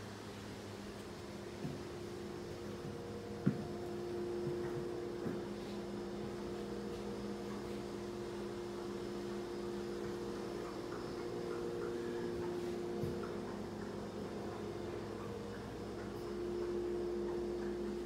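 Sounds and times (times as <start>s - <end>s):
electrical hum: 0.0s - 18.0s.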